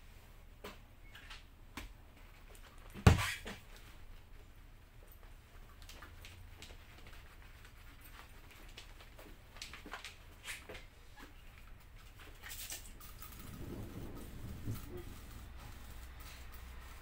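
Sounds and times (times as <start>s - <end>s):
cloth rubbing on helmet shell: 6.2s - 17.0s.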